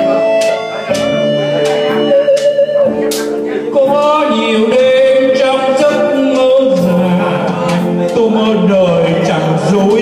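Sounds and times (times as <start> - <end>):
electronic keyboard ballad: 0.0 - 10.0
man singing with vibrato: 3.4 - 10.0.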